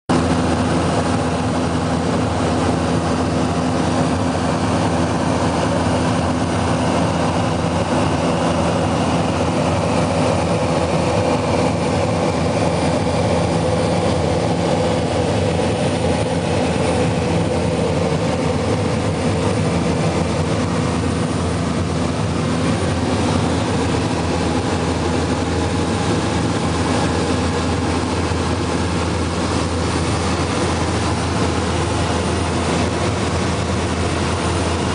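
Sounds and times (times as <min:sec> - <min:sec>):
aircraft cabin engine drone: 0:00.1 - 0:34.9.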